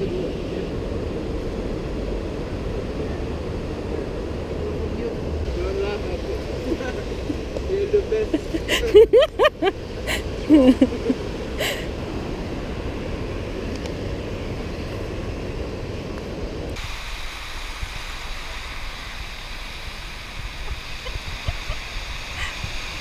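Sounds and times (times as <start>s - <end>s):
ocean surf breaking on sand: 5.6s - 16.2s, 16.8s - 23.0s.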